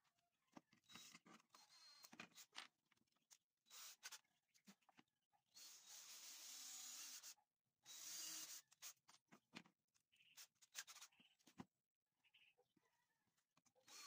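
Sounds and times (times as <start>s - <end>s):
cordless drill driving screws: 0.9s - 2.5s, 3.7s - 4.2s, 5.6s - 9.0s.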